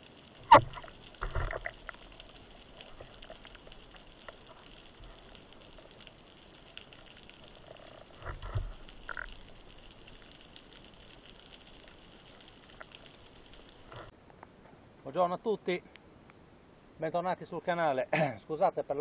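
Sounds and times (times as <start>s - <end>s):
small clicks: 0.0s - 14.5s.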